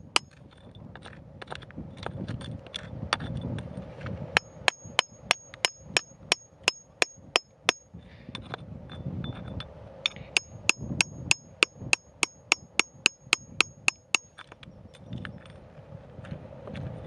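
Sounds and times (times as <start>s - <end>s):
hammer striking steel chisel: 0.0s - 0.4s, 4.4s - 7.9s, 10.0s - 14.5s
loose rock rustling: 0.0s - 15.6s.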